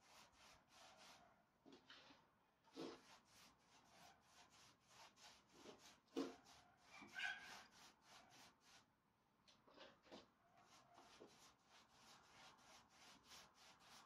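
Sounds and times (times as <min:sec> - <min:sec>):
paintbrush swishing on wood: 0:00.0 - 0:08.9, 0:09.8 - 0:14.0
thin squeak: 0:06.6 - 0:07.7.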